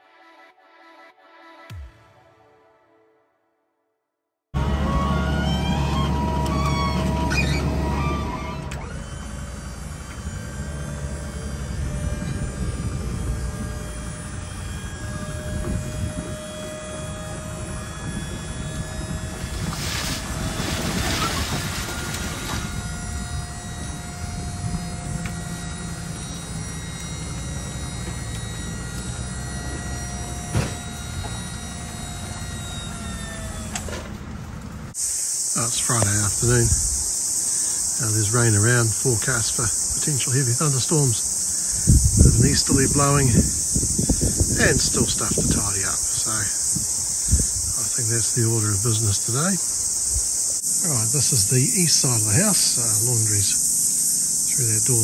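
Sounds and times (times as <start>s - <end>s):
truck engine: 4.6s - 35.0s
hydraulic pump running: 4.6s - 55.0s.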